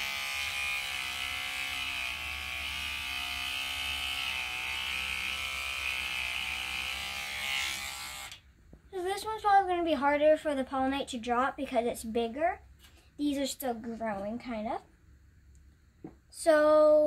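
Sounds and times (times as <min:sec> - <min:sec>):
electric toothbrush buzzing: 0:00.0 - 0:08.4.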